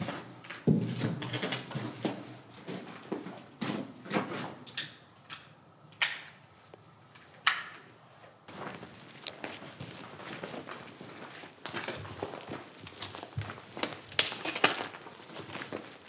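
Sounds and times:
footsteps crunching on dry debris: 8.5s - 16.0s
sharp cracks: 11.8s - 16.0s.

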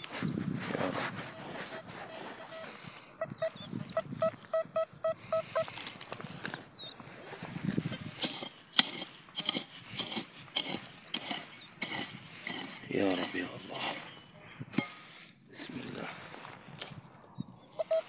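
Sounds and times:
metal detector beeping: 1.3s - 5.9s, 17.6s - 18.0s
pick chopping into stony soil: 7.8s - 14.0s.

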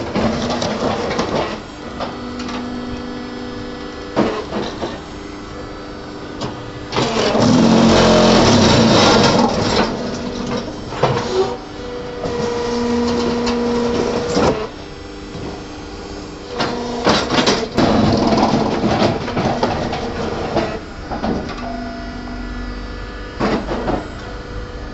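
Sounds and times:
machine whine: 0.0s - 24.9s
motor hum: 0.0s - 24.9s
loud rattling vibration: 6.8s - 10.9s.

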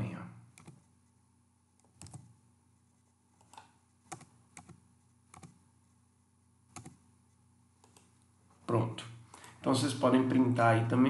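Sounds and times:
computer keyboard keystrokes: 0.5s - 0.8s, 1.8s - 2.3s, 3.4s - 5.6s, 6.7s - 7.0s.

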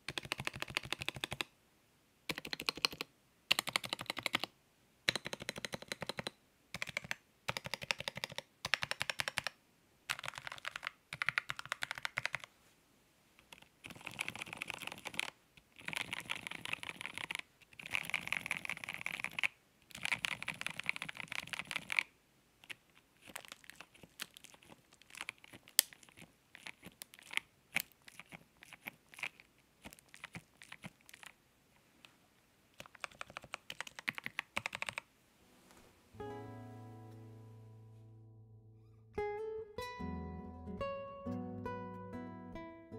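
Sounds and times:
typing on mechanical keyboard: 0.0s - 1.5s, 2.3s - 4.5s, 5.1s - 12.5s, 13.4s - 31.4s, 32.8s - 35.1s.

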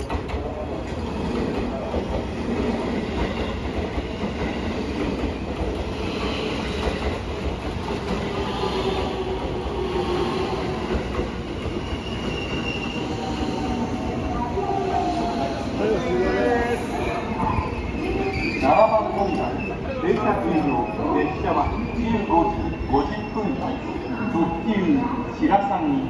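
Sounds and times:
train wheels rumbling: 0.0s - 25.3s
wheels squealing on rail: 5.4s - 7.2s, 8.2s - 25.4s.

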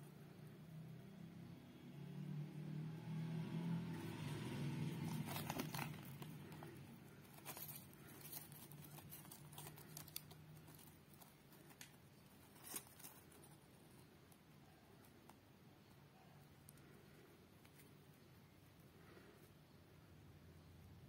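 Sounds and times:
paper and cardboard crinkling: 4.9s - 14.0s.

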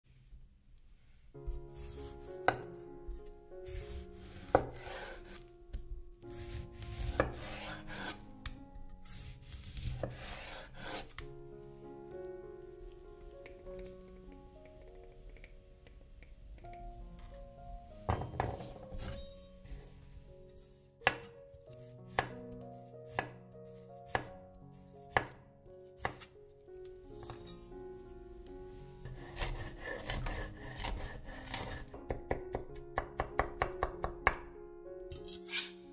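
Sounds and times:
soft background music: 1.0s - 35.9s
knife slicing tomato: 6.3s - 11.3s, 22.1s - 22.4s, 29.0s - 31.9s
knife knocking on wooden board: 18.1s - 18.8s
knife chopping on wooden board: 21.0s - 21.3s, 22.1s - 22.4s, 23.1s - 23.4s, 24.1s - 24.3s, 25.1s - 25.4s, 26.0s - 26.3s, 29.1s - 34.2s.

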